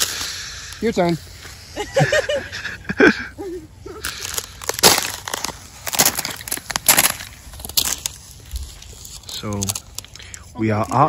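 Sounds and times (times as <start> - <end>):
footsteps crunching on wet ground: 4.1 - 11.0.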